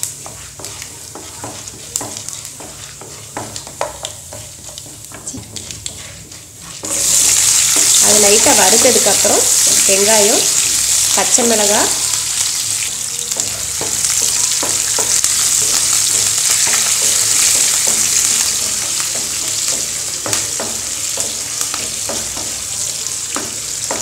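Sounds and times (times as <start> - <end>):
wooden spatula scraping pan: 0.0 - 12.6
food sizzling in hot oil: 0.0 - 24.0.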